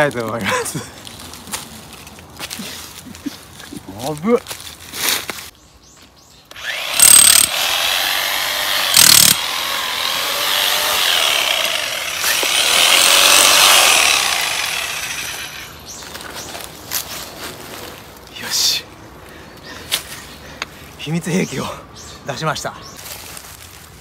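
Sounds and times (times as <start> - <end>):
electric hammer chiselling soil: 6.5 - 15.7.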